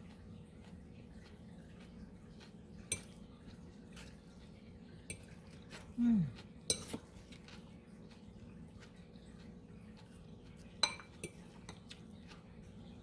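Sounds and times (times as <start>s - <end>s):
fork stirring salad: 0.0s - 13.0s
fork clinking against glass bowl: 2.9s - 3.2s, 10.8s - 11.9s.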